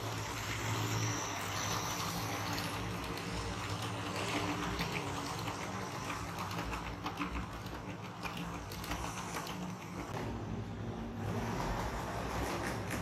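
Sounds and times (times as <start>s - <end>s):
small irregular clicks: 0.6s - 10.2s.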